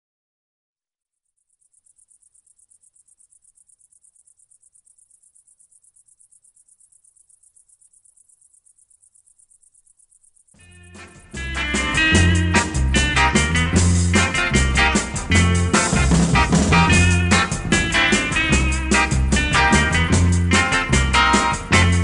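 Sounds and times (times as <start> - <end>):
cricket chirping: 1.2 - 11.4.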